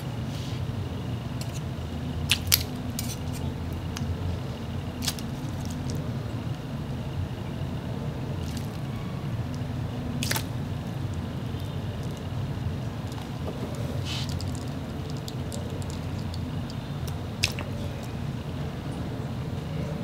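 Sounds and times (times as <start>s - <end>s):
low background hum: 0.0s - 20.0s
frog snapping wet clicks: 2.3s - 2.7s, 8.4s - 8.8s, 10.2s - 12.3s, 14.3s - 18.1s.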